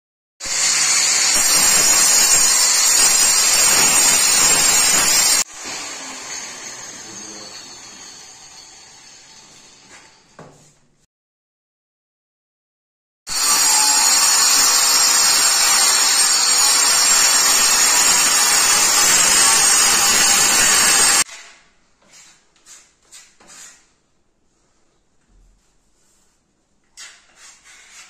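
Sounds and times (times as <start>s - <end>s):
electric power tool whining: 0.5s - 8.3s, 13.3s - 21.3s
faint knocks and scrapes: 9.8s - 11.0s, 24.6s - 28.0s.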